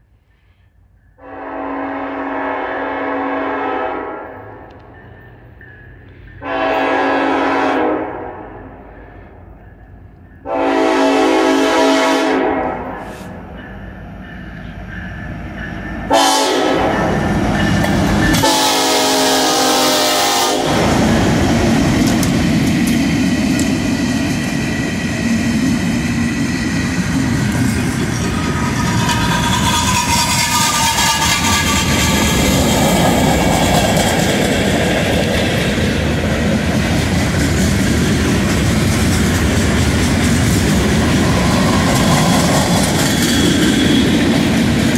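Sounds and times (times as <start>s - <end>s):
locomotive air horn blasts: 1.2s - 4.6s, 6.4s - 8.6s, 10.4s - 13.4s, 16.1s - 17.2s, 18.3s - 21.0s, 30.0s - 32.2s
freight car wheels rumbling on rail: 13.0s - 44.9s
locomotives passing: 13.4s - 44.9s.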